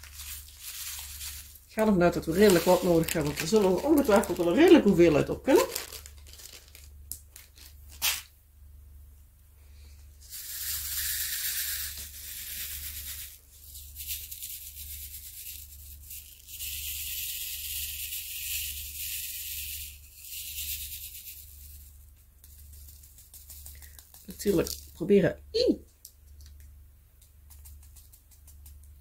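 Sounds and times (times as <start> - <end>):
plastic beads rattling in a tray: 0.0 - 8.3, 10.2 - 25.0.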